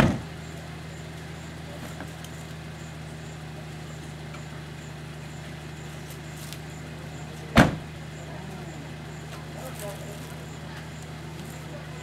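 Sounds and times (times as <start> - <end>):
car door slamming: 0.0 - 0.3, 7.5 - 8.0
car engine idling: 0.0 - 12.0.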